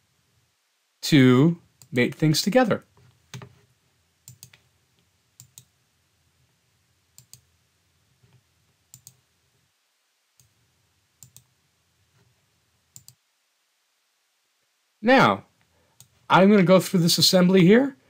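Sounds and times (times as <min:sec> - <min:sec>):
computer mouse clicks: 0:04.2 - 0:05.7, 0:07.2 - 0:07.5, 0:08.2 - 0:09.2, 0:10.4 - 0:10.6, 0:11.2 - 0:11.5, 0:12.9 - 0:13.2, 0:16.0 - 0:16.2.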